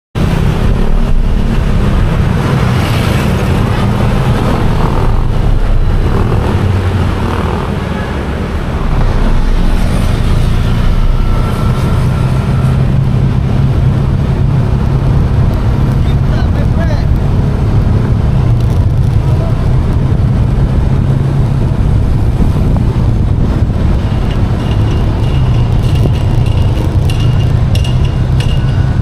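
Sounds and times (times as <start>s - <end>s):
road and wind noise: 0.1s - 29.0s
motorcycle engine running: 0.3s - 7.9s, 20.0s - 29.0s.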